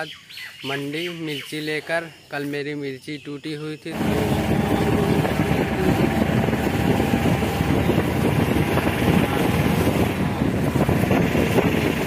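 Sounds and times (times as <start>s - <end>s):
vehicle engine and road noise: 3.9s - 12.0s
wind buffeting microphone: 3.9s - 12.0s.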